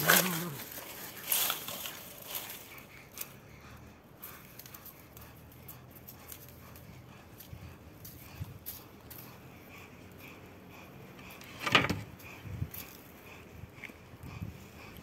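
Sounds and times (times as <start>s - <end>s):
cat growling: 0.0s - 0.8s
rustling of dry leaves: 0.0s - 10.0s.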